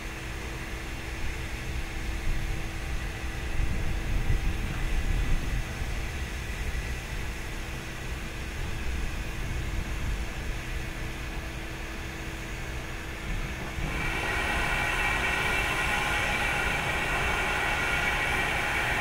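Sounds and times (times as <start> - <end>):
steady hum: 1.2 - 19.0
steam hissing: 11.8 - 19.0.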